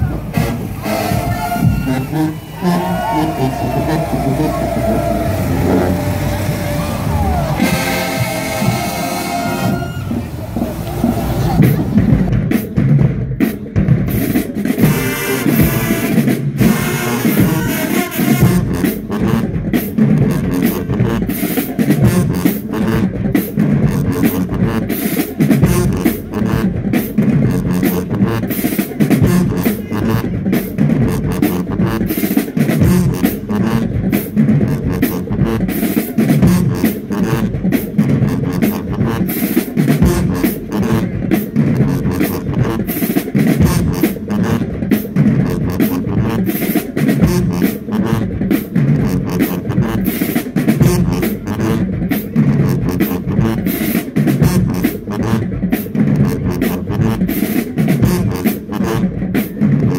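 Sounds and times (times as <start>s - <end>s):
bass drum beats: 0.0s - 59.9s.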